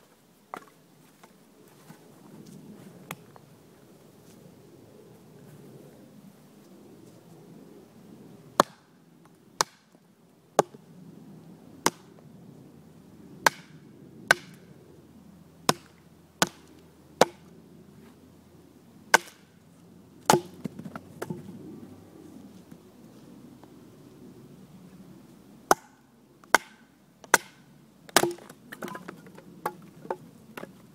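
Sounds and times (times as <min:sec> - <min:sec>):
knife chopping into log: 0:20.3 - 0:21.4, 0:28.2 - 0:29.0.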